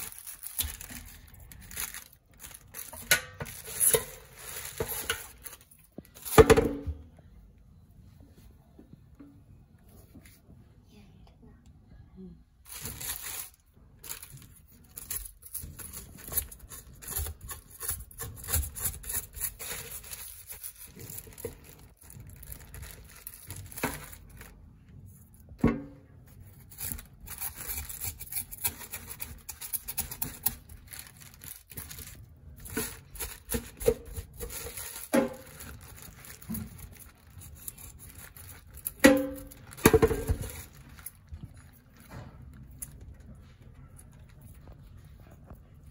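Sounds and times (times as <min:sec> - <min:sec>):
plastic bag crinkling: 0:00.0 - 0:06.4, 0:12.6 - 0:25.2, 0:26.5 - 0:45.4
knife scraping fish scales: 0:16.2 - 0:20.5, 0:26.7 - 0:30.7.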